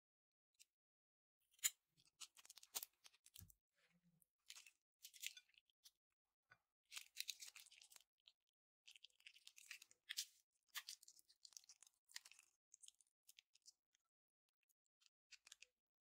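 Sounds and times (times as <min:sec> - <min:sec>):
slime crunching and crackling: 0:06.9 - 0:08.1, 0:08.9 - 0:13.8.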